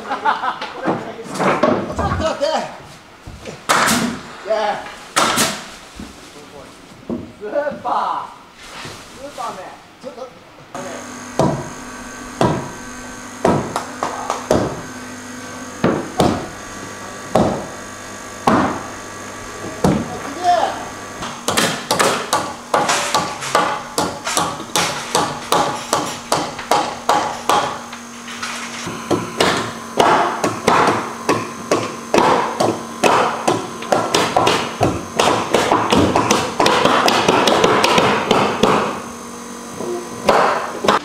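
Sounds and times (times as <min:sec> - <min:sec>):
steady hum: 0:00.0 - 0:41.0
hammer blows: 0:10.8 - 0:39.1, 0:39.7 - 0:41.0.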